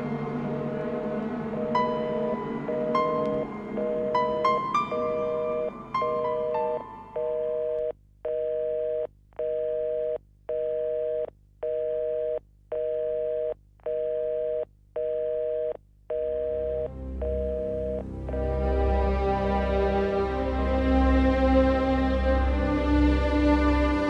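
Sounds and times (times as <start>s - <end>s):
telephone signal tone beeping: 1.6s - 18.0s.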